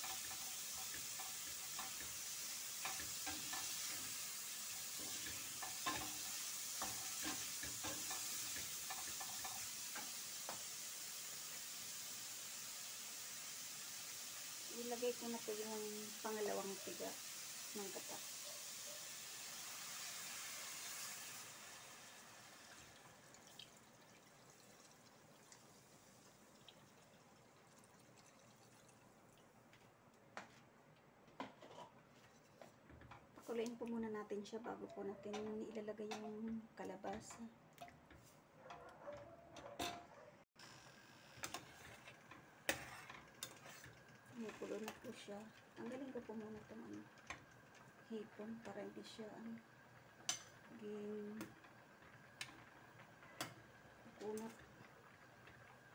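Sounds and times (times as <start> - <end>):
shrimp sizzling in oil: 0.0 - 23.8, 40.5 - 55.9
liquid trickling into a pan: 19.6 - 29.6
wooden spatula scraping a pan: 31.4 - 33.7, 41.5 - 45.0.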